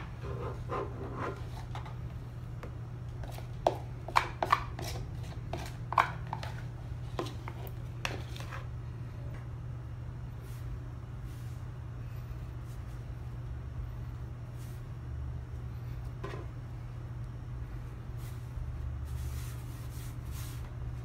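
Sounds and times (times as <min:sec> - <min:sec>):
steady low hum: 0:00.0 - 0:21.0
spoon scraping plastic bowl: 0:03.2 - 0:08.7.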